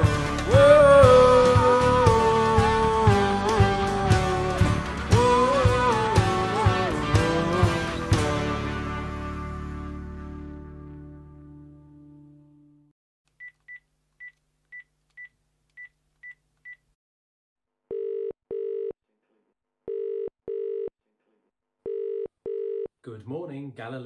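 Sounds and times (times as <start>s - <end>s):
phone ringing tone: 17.9s - 19.0s, 19.9s - 20.9s, 21.9s - 22.9s.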